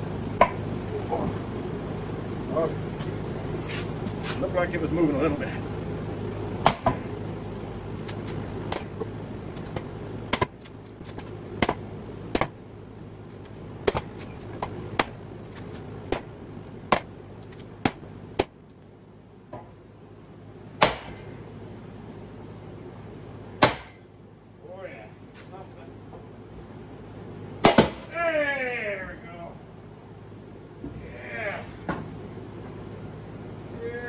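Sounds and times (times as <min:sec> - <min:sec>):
sledgehammer striking metal: 0:20.8 - 0:21.4, 0:23.6 - 0:24.0.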